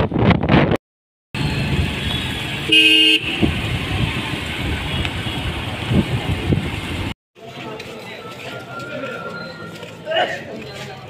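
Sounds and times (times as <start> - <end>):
wind buffeting microphone: 0.0 - 0.8, 3.2 - 7.1
road traffic noise: 1.4 - 11.0
vehicle horn honk: 2.0 - 3.5.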